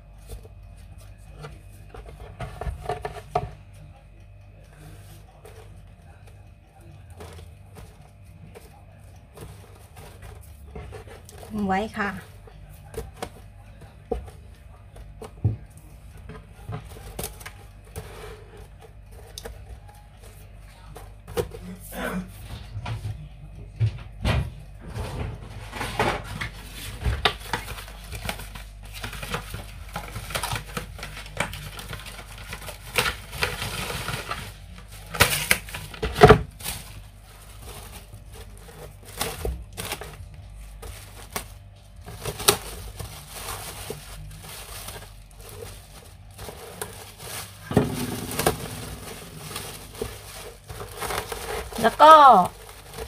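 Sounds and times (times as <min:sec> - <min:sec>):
cling film rustling and crinkling: 0:25.7 - 0:53.0.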